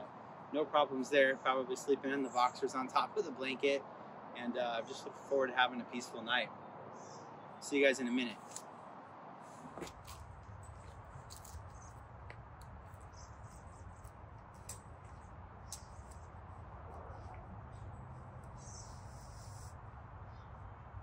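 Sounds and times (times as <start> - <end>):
high bird trill: 12.8 - 19.7.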